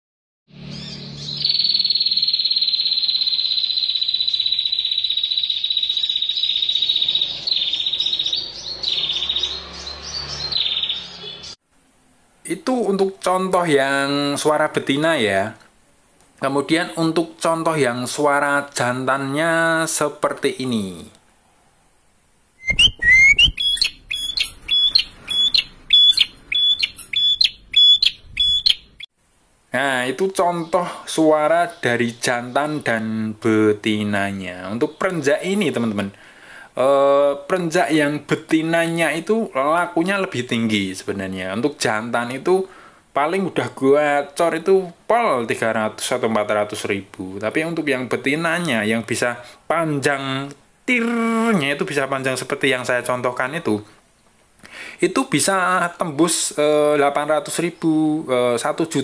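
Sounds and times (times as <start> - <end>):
bird singing high trill: 0.6 - 11.6, 22.6 - 29.1.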